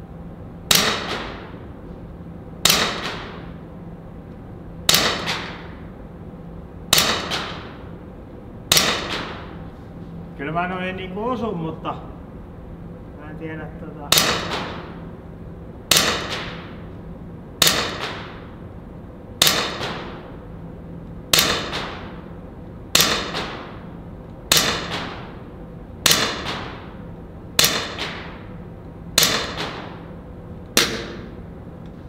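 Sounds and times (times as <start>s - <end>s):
air pistol shots: 0.7s - 1.6s, 2.6s - 3.6s, 4.8s - 5.9s, 6.9s - 7.8s, 8.7s - 9.6s, 14.1s - 15.0s, 15.9s - 16.9s, 17.6s - 18.6s, 19.4s - 20.4s, 21.3s - 22.3s, 22.9s - 25.4s, 26.0s - 27.0s, 27.6s - 28.5s, 29.1s - 30.1s, 30.8s - 31.4s.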